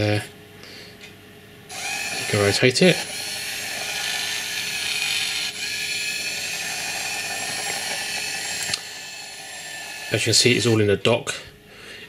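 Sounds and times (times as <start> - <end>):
small gear motors whining: 1.7 - 10.8.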